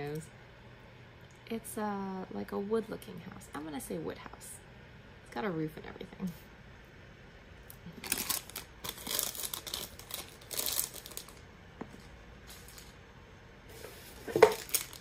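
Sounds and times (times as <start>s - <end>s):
plastic wrappers crinkling: 7.8s - 11.5s, 12.4s - 13.0s, 13.8s - 15.0s.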